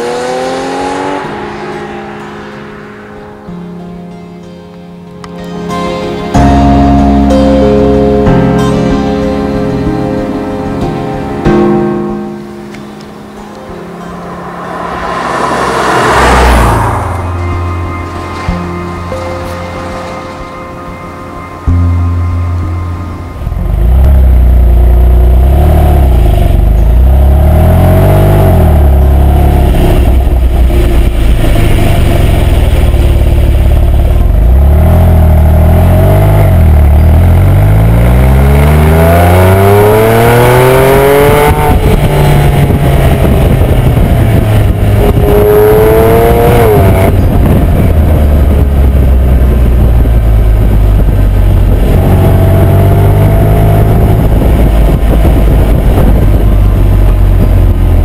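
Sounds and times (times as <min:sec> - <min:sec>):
car exhaust revving: 0:00.0 - 0:04.0, 0:12.6 - 0:58.0.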